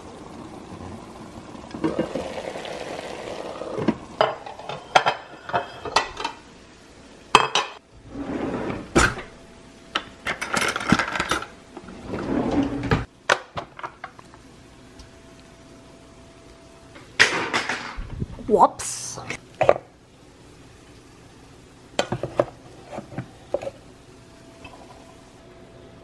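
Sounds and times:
plates and utensils clinking: 4.2 - 6.4, 7.4 - 7.8.

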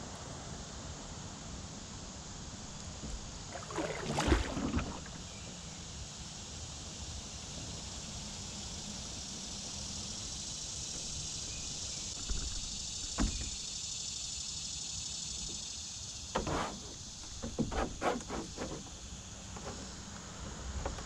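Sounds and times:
insects droning: 0.0 - 21.0
canoe and paddle knocks and splashes: 3.0 - 5.2.

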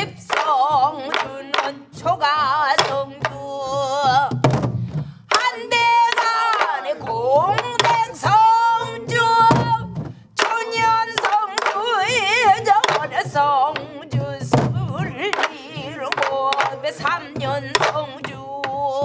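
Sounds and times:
woman singing with wide vibrato: 0.0 - 4.5, 5.2 - 19.0
barrel drums beaten in rhythm: 0.0 - 19.0.

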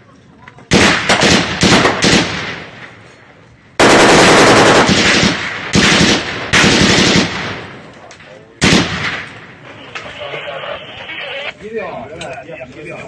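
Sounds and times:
automatic gunfire bursts: 0.7 - 2.5, 3.8 - 7.6
gunfire echo: 0.7 - 3.2, 3.8 - 9.6.

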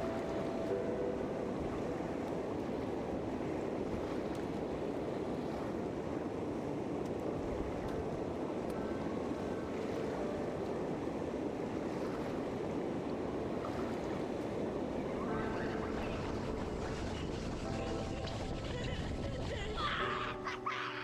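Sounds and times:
water rushing over a dam: 11.8 - 20.3.

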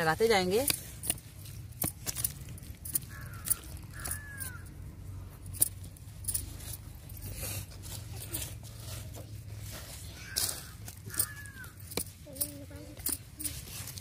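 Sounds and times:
bird calling: 2.9 - 5.2, 10.0 - 12.0.

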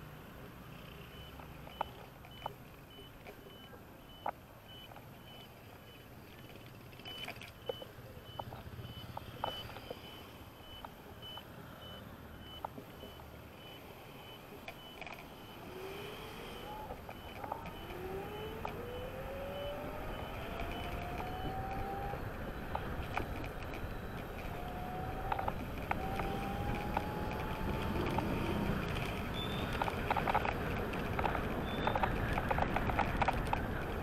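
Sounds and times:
road and wind noise: 0.0 - 34.0
high repeating beep: 29.3 - 29.8.

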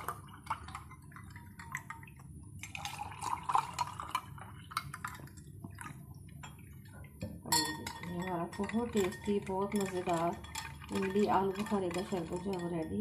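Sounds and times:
water poured into glasses: 0.0 - 6.0.

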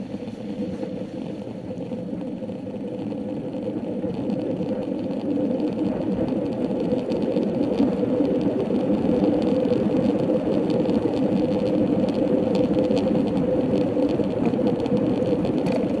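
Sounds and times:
bicycle rolling on asphalt: 0.0 - 16.0
wind: 0.0 - 16.0.

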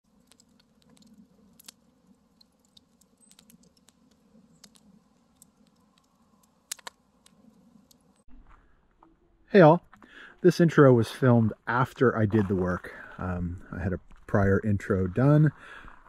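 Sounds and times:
wood fire crackling: 0.0 - 8.6, 9.6 - 16.0.

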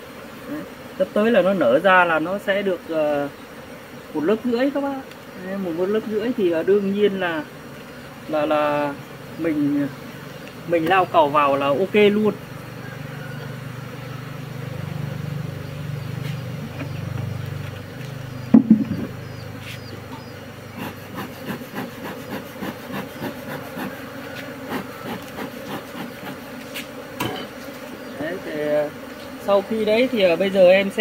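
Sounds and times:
bees buzzing: 0.0 - 31.0
clicks and rubbing of hive box: 4.9 - 6.4, 10.2 - 11.1, 16.0 - 28.2
wood knocking: 18.5 - 19.2.

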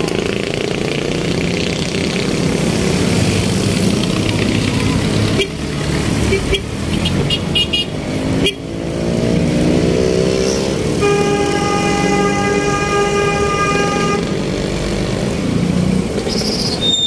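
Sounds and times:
street traffic: 0.0 - 17.0
vehicle horn long note: 11.0 - 14.3.

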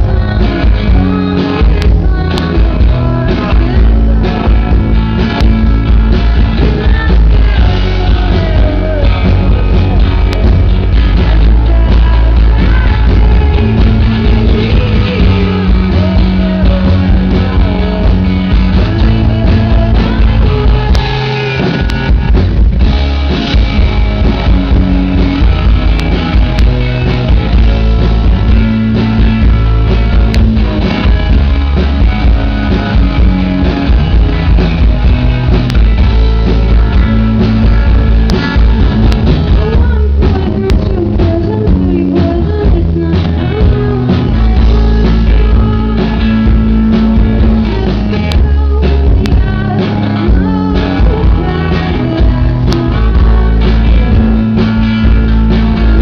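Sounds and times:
drum kit: 0.0 - 56.0
electric guitar: 0.0 - 56.0.

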